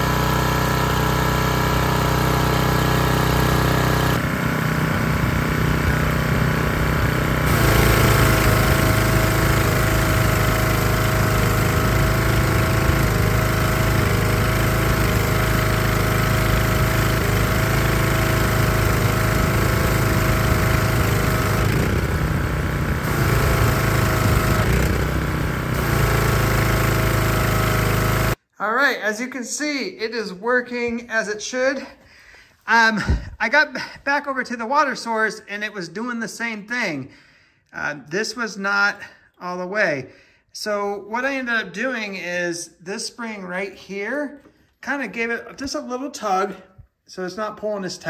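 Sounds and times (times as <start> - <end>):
pressure washer engine running: 0.0 - 28.4
water spraying: 7.3 - 28.4.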